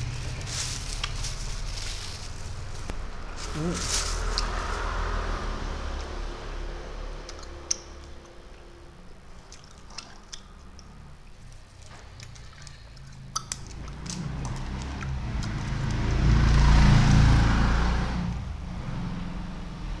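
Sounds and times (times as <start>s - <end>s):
plastic wrappers handled: 0.0s - 4.9s.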